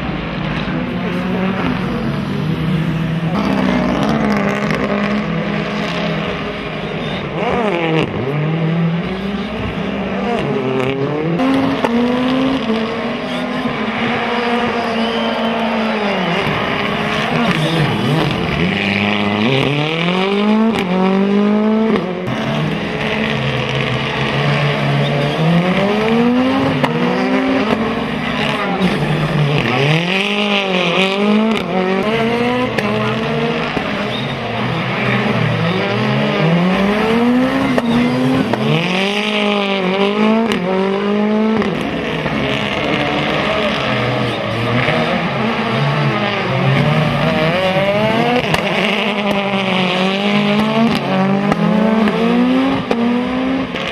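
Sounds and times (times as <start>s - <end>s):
rally car engine revving: 0.0s - 53.9s.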